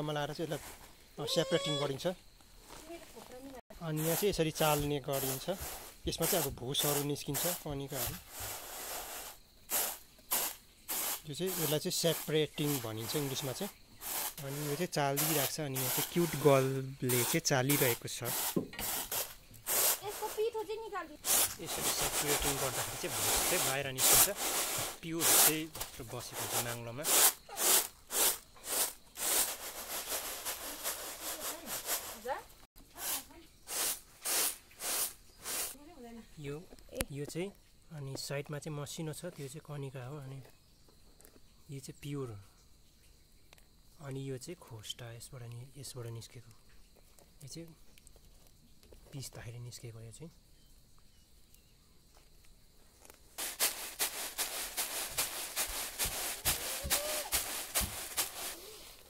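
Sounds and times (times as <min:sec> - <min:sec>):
grains swishing on bamboo tray: 0:04.0 - 0:20.5, 0:21.2 - 0:32.4, 0:33.0 - 0:35.8, 0:53.4 - 0:59.0.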